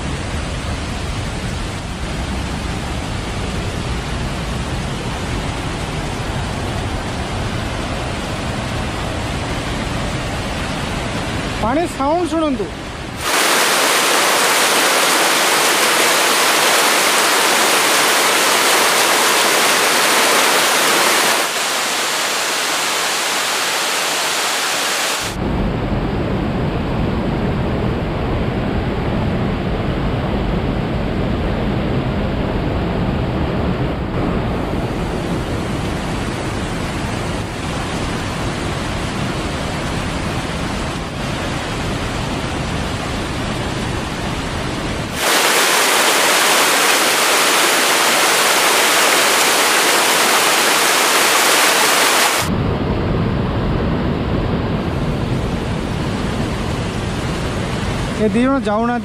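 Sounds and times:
waterfall rushing: 0:00.2 - 0:25.4, 0:44.6 - 0:52.5.

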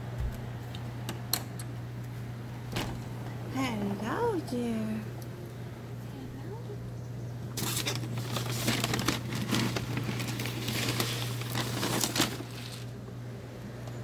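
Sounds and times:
steady low hum: 0:00.0 - 0:14.0
crackling crumpling rustle: 0:07.5 - 0:13.0.

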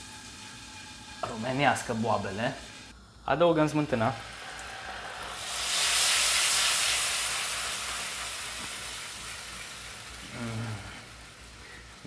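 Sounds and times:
hot pan sizzling: 0:00.0 - 0:02.9, 0:03.7 - 0:12.0.

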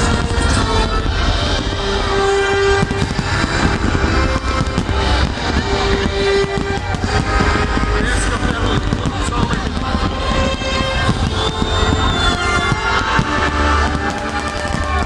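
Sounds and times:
fireworks bursting: 0:00.0 - 0:15.0
music playing: 0:00.0 - 0:15.0.

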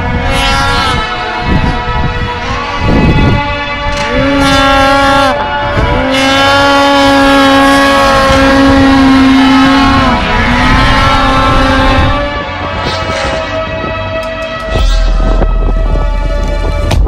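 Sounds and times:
snowmobile engine revving: 0:00.0 - 0:13.8.

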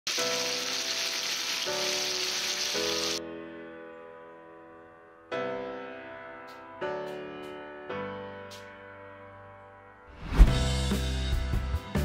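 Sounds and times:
chicken sizzling in frying pan: 0:00.1 - 0:03.2
piano music: 0:00.1 - 0:12.0.

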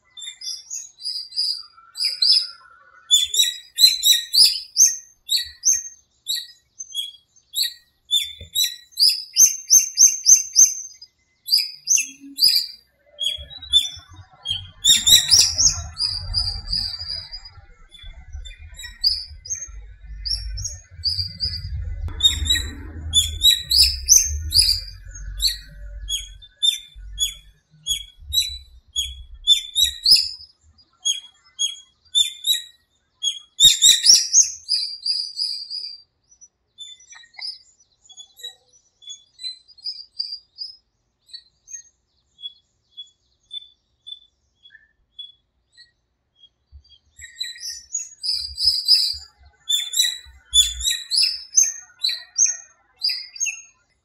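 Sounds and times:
songbirds chirping and trilling: 0:00.0 - 0:54.0
low rumble: 0:14.0 - 0:30.1.

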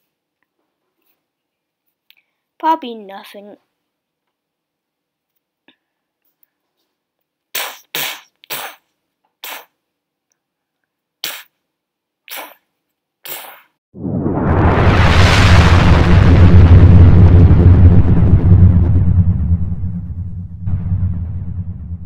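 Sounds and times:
short sharp noise bursts: 0:07.6 - 0:09.8
loud explosion: 0:14.0 - 0:22.0.

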